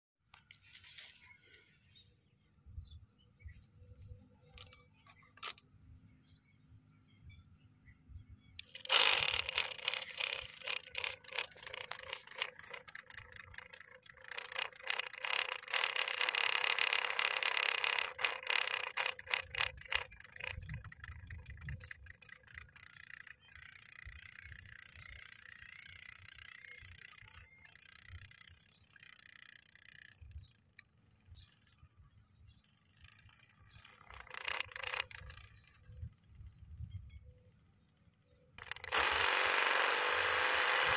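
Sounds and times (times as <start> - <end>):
small electric drilling motor whining: 8.6 - 31.8, 32.4 - 36.9, 38.5 - 40.9.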